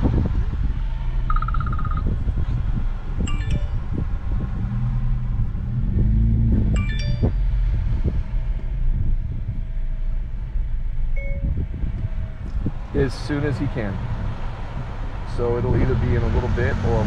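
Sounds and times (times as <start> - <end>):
road and engine rumble in car: 0.0 - 17.0
short electronic chimes: 3.3 - 3.8, 6.8 - 7.4.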